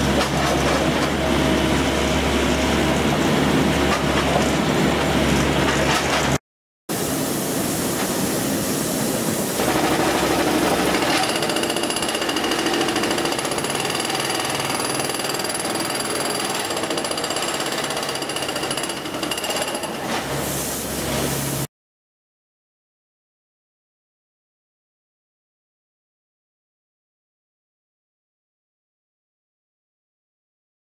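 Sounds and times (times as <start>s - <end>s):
hydraulic breaker hammering: 9.6s - 20.1s.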